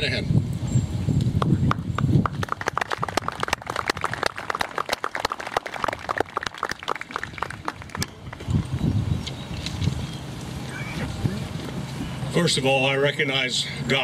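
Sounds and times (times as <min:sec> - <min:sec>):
crowd applauding: 0:01.7 - 0:08.6.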